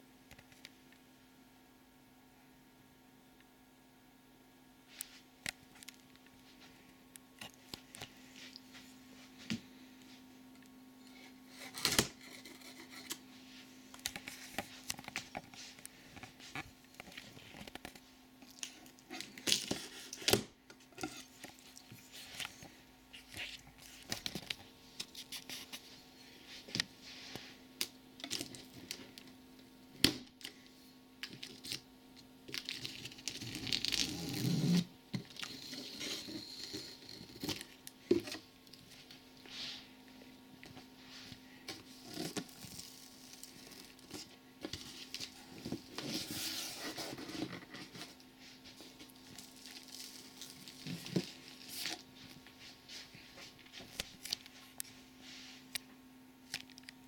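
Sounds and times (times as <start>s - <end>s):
scratching and tearing: 32.5s - 38.4s, 41.8s - 52.1s.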